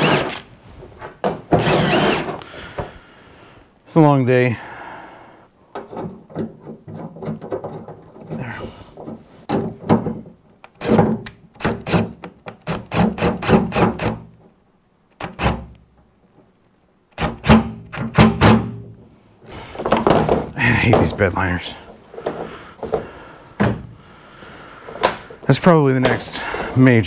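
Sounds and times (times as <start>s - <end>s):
cordless driver whirring: 0.0s - 0.4s, 1.6s - 2.4s.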